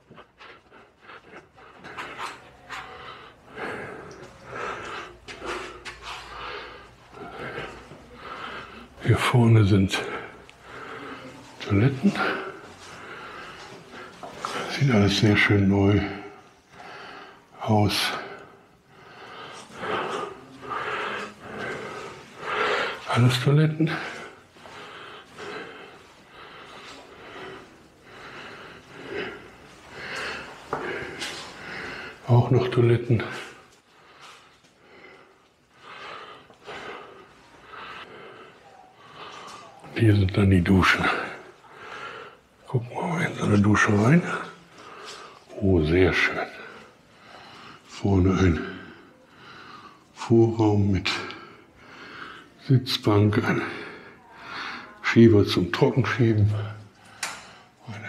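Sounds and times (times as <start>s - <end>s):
person breathing noisily: 18.4s - 23.1s, 23.9s - 32.3s.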